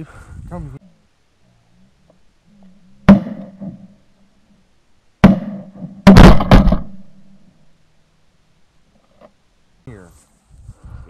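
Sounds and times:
shotgun shots echoing: 0:05.2 - 0:07.4.

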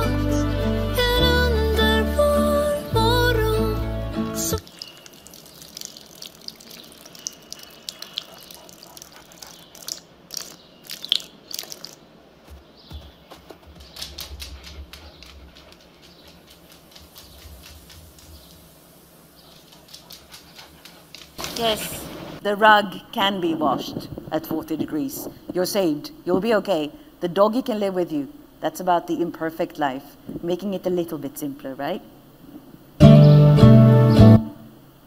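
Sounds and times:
advert music: 0:00.0 - 0:04.6, 0:33.0 - 0:34.6
dripping and trickling: 0:04.6 - 0:12.0.

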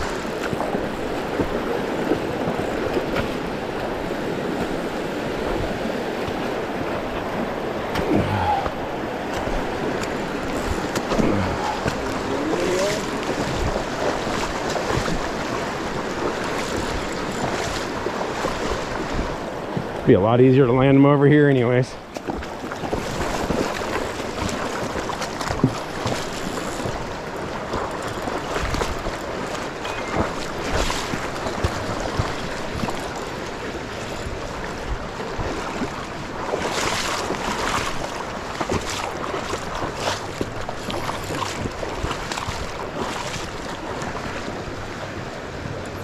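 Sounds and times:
river current rushing: 0:00.0 - 0:46.0.

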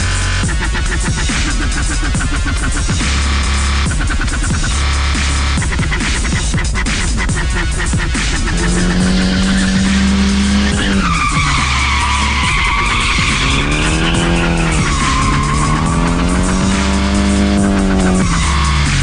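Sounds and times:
car engine revving hard: 0:07.0 - 0:19.0
tyres squealing: 0:08.3 - 0:19.0.

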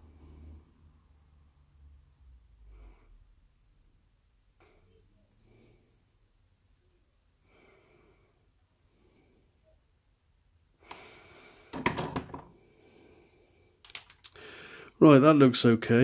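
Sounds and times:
faint breathing: 0:00.0 - 0:01.4, 0:02.3 - 0:03.5, 0:04.6 - 0:06.5, 0:07.3 - 0:10.0, 0:10.7 - 0:11.8, 0:12.5 - 0:15.0
workbench handling: 0:11.7 - 0:12.5.

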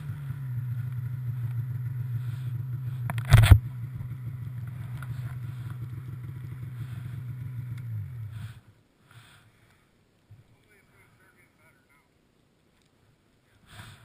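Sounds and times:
snowmobile engine idling: 0:00.0 - 0:09.9.

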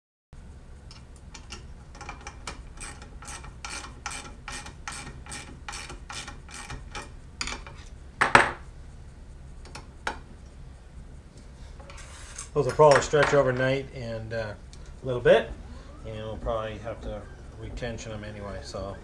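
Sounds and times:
ratchet clicking: 0:00.8 - 0:07.6.

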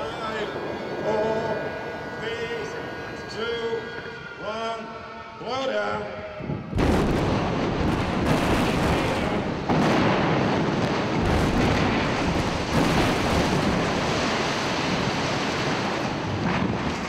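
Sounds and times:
building collapsing rumble: 0:06.4 - 0:17.0
explosive charges going off: 0:06.7 - 0:17.0.

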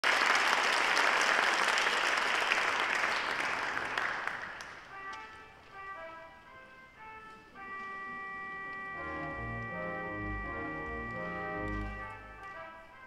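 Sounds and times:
audience applause: 0:00.0 - 0:04.9
pipe organ held notes: 0:04.9 - 0:13.0.

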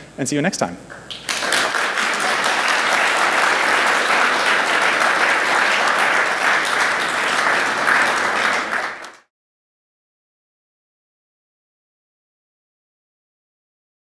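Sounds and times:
audience applauding: 0:01.1 - 0:09.3.

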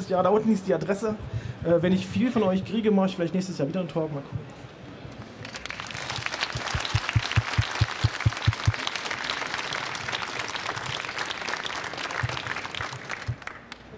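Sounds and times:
audience applauding: 0:05.4 - 0:13.9
regular low thumps: 0:06.5 - 0:08.7.

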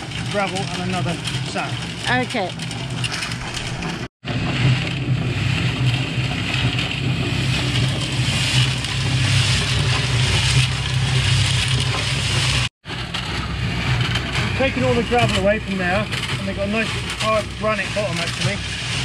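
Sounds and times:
concrete mixer motor humming: 0:00.0 - 0:19.0
gritty rattle of tumbling gravel: 0:00.0 - 0:19.0.

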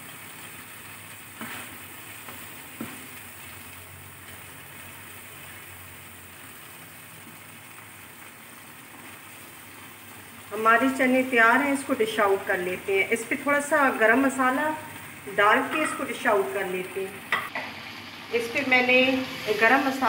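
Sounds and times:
curry sizzling and bubbling in a pan: 0:00.0 - 0:20.0
spoon knocking against pan: 0:17.3 - 0:17.7.

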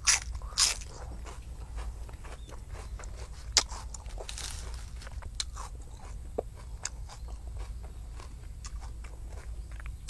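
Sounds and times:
crunchy chewing: 0:00.0 - 0:10.0.

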